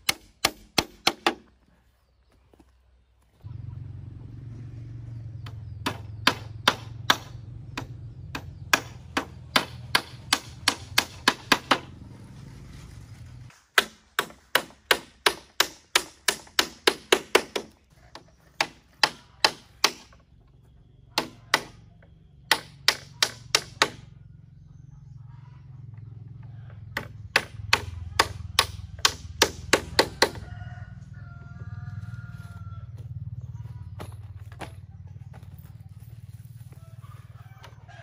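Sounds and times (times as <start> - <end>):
hand tool striking wood: 0.0 - 1.5.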